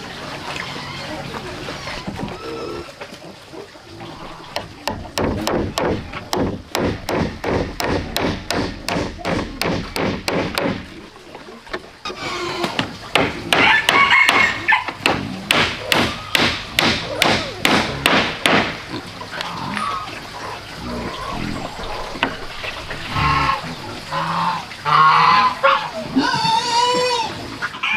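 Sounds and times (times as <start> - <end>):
hammer nailing wooden planks: 4.8 - 10.9, 15.0 - 18.8.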